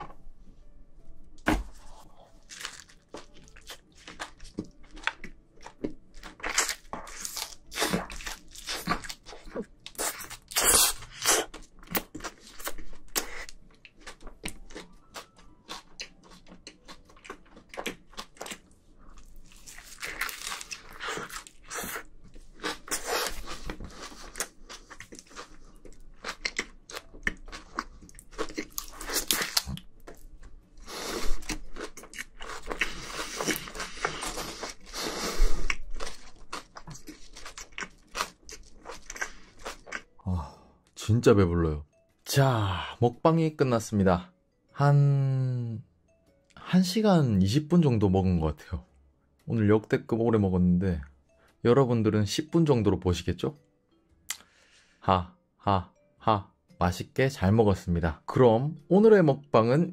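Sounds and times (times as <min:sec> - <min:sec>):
close-miked chewing and crunching: 0:01.7 - 0:41.0.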